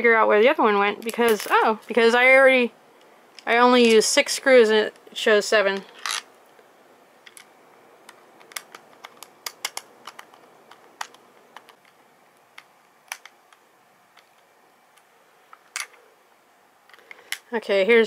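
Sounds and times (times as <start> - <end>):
plastic parts clicking: 5.8 - 6.6, 7.2 - 16.0, 16.8 - 17.5.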